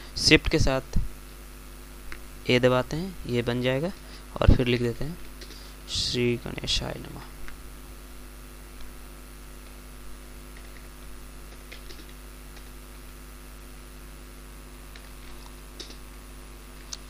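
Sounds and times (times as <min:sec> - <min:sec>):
steady electrical hum: 0:00.0 - 0:17.0
keyboard keys clicking: 0:11.5 - 0:12.7, 0:14.9 - 0:16.0.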